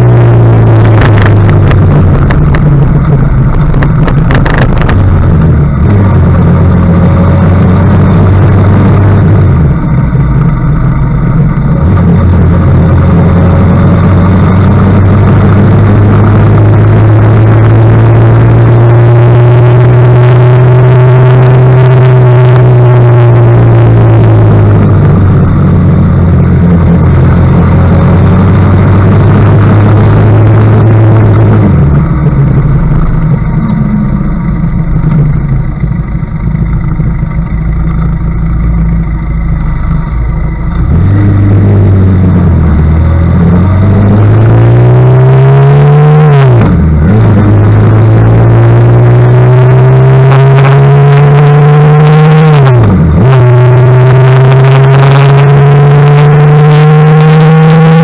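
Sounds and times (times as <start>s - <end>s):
wind noise on microphone: 0.0s - 9.8s
motorcycle engine running: 0.0s - 58.0s.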